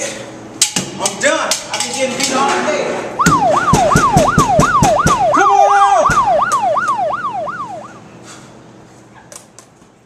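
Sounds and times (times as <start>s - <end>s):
police siren yelping: 3.2s - 8.1s.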